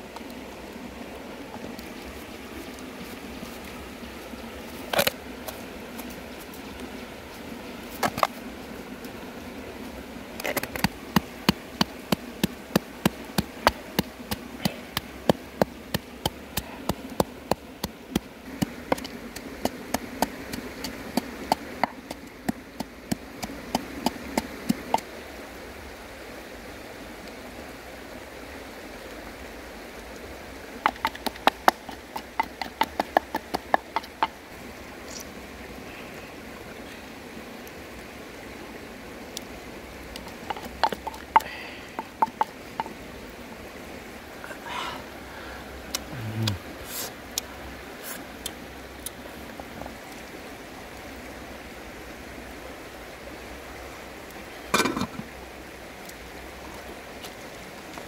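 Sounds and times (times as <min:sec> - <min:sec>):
background noise: 0:00.0 - 0:58.0
pestle pounding in wooden mortar: 0:30.8 - 0:34.4.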